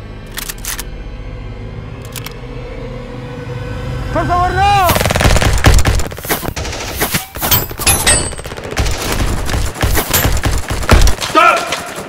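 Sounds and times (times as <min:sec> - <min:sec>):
rapid automatic gunfire: 0:04.9 - 0:12.0.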